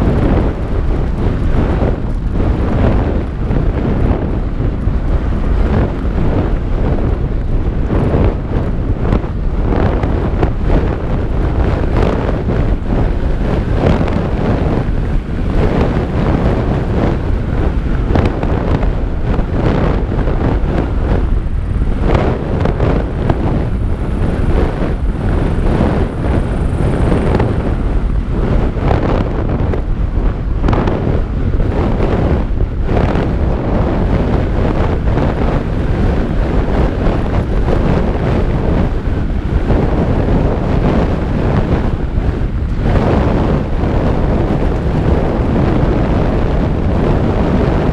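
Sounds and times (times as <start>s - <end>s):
bike tyres on dirt: 0.0s - 28.9s
wind rushing over microphone: 0.0s - 47.9s.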